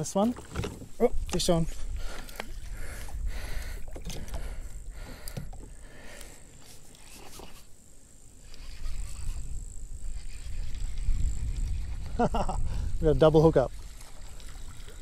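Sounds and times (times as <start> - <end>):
fishing gear clicks and knocks: 0.0 - 2.7, 3.9 - 5.8
wind rumbling on microphone: 0.0 - 6.1, 8.4 - 15.0.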